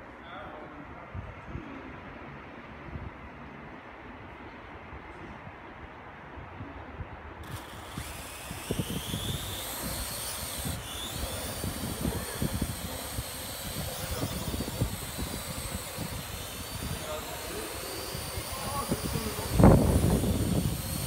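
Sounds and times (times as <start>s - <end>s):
drone propeller whine: 7.4s - 21.0s.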